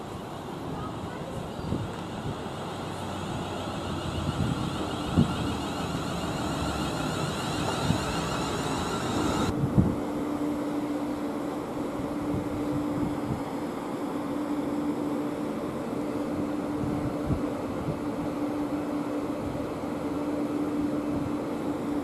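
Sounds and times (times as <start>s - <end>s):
train running noise: 0.0s - 22.0s
low hum: 1.6s - 22.0s
electric whine: 2.0s - 13.1s.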